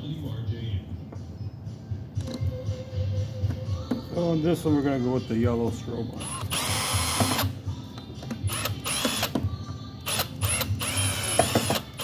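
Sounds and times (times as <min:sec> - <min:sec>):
cordless drill driving screws: 0:06.2 - 0:07.5, 0:08.5 - 0:09.3, 0:10.1 - 0:12.0.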